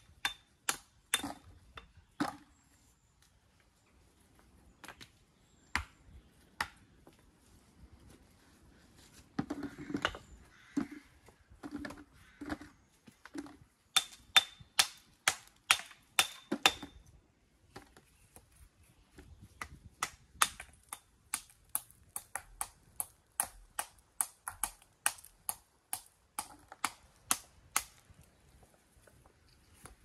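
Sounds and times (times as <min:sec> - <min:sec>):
hammer striking stone: 0:14.0 - 0:17.0.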